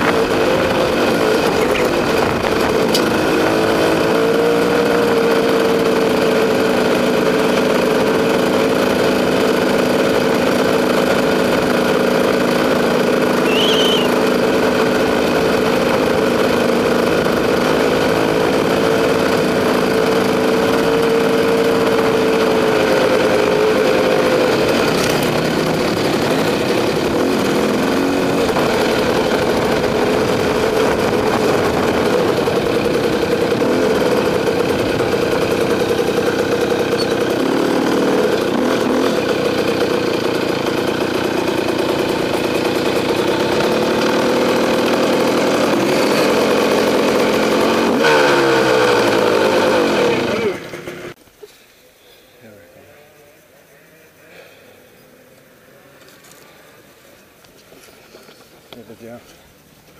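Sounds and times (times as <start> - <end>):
dirt bike engine running: 0.0 - 51.2.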